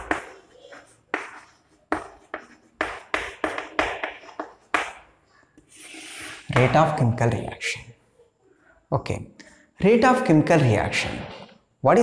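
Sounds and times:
chalk tapping and writing on chalkboard: 0.0 - 7.0.

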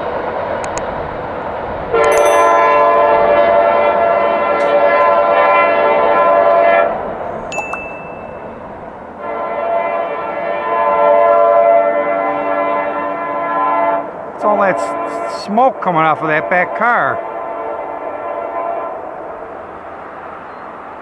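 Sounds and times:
locomotive air horn blasts: 1.9 - 7.1, 9.2 - 19.3.

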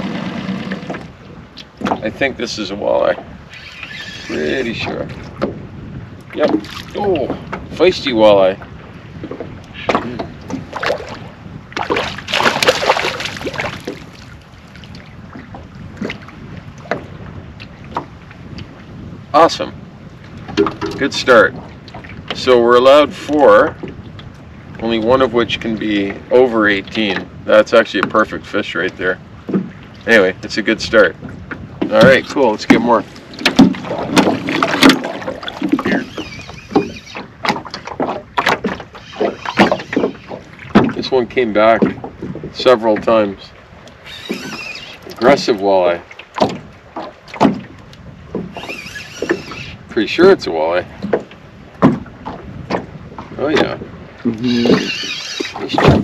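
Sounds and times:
gear bumping against hull: 0.0 - 2.4, 3.0 - 7.9, 8.6 - 11.2, 20.3 - 22.5, 31.2 - 43.2, 44.1 - 49.7, 50.4 - 56.0
knocks and clunks in boat: 0.0 - 56.0
fish splashing and thrashing: 6.2 - 7.7, 9.1 - 18.6, 31.6 - 41.1, 43.7 - 49.8, 50.9 - 56.0.

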